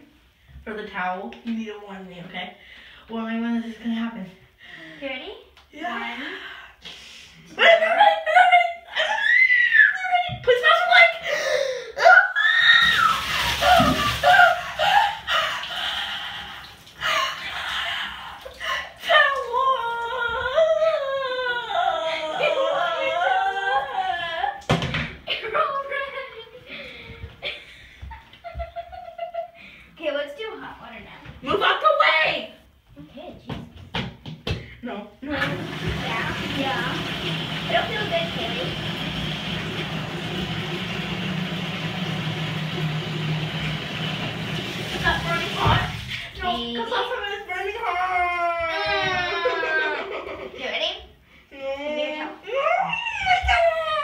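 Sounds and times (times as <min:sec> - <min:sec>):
girl gasping and shrieking: 0:11.2 - 0:12.7
faucet running into plastic bucket: 0:12.4 - 0:17.1, 0:35.3 - 0:46.6.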